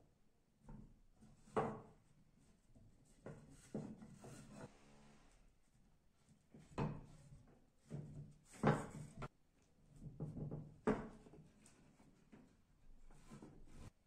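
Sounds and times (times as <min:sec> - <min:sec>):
wooden knocks and scrapes: 0:03.0 - 0:04.8, 0:06.5 - 0:09.3, 0:09.9 - 0:14.0.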